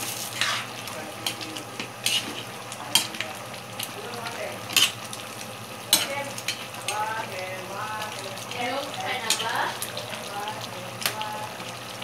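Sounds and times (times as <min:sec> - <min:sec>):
spoon scraping metal pan: 0:00.0 - 0:03.1
spoon stirring a pan: 0:00.0 - 0:05.2, 0:05.8 - 0:11.8
curry sizzling: 0:00.0 - 0:12.0.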